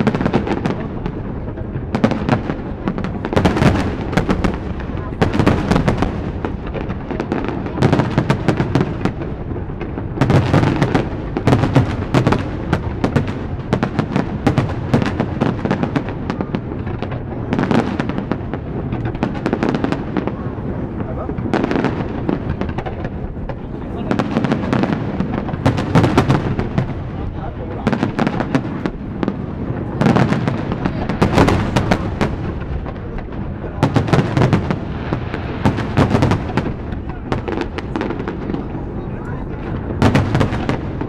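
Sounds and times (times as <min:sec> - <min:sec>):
fireworks bangs and crackle: 0:00.0 - 0:41.0
low rumble of booms: 0:00.0 - 0:41.0.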